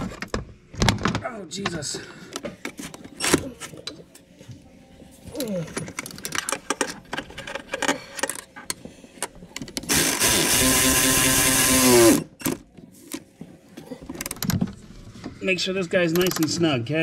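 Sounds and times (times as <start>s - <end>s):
handheld power tool running: 9.9s - 12.3s.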